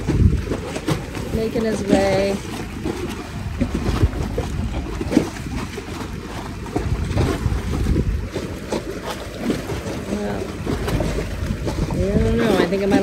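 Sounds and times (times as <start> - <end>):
wind gusts on microphone: 0.0 - 2.5, 6.7 - 8.6, 9.7 - 13.0
water lapping against dock: 0.0 - 13.0.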